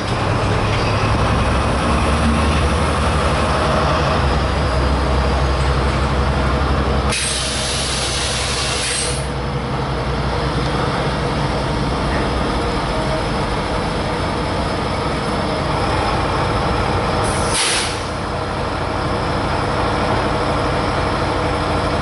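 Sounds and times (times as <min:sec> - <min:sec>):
diesel locomotive engine droning: 0:00.0 - 0:22.0
air release hiss: 0:07.1 - 0:09.3, 0:17.2 - 0:18.2.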